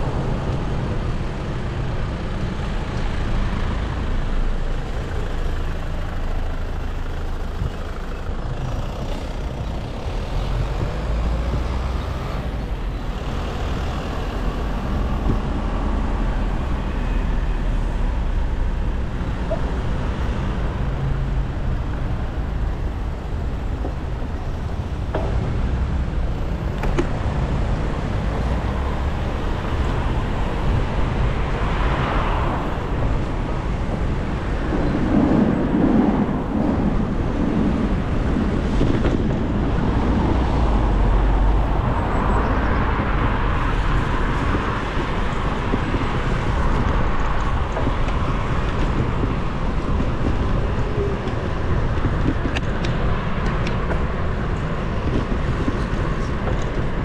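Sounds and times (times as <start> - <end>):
traffic on wet road: 0.0 - 57.0
vehicles passing: 0.0 - 57.0.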